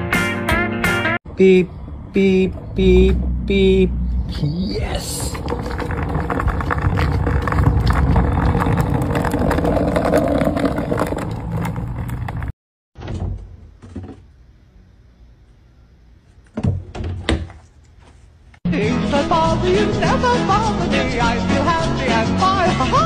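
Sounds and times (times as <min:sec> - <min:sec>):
skateboard wheels rolling on asphalt: 0:04.8 - 0:12.6.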